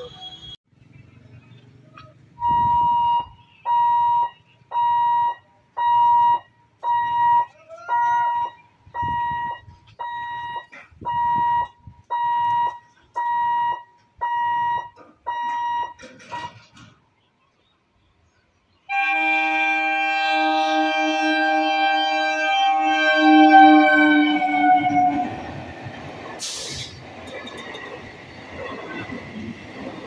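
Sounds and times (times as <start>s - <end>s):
level crossing warning beeps: 2.4s - 16.6s.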